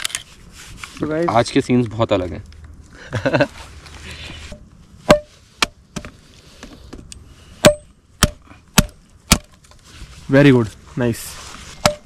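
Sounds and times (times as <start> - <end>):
hatchet chopping into log: 7.6 - 9.5.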